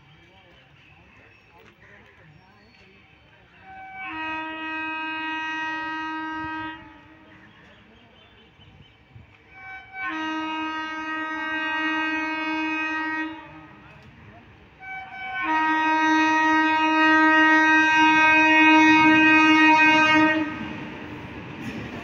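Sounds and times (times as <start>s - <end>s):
train wheels rumbling: 0.0s - 22.0s
locomotive horn blasts: 3.6s - 7.4s, 9.5s - 13.9s, 14.8s - 21.0s.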